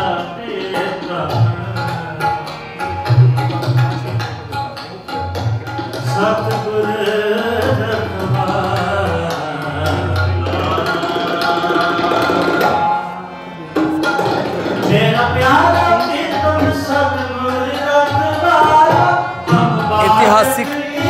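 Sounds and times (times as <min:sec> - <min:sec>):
tabla drum strokes: 0:00.0 - 0:21.0
devotional singing: 0:19.9 - 0:21.0.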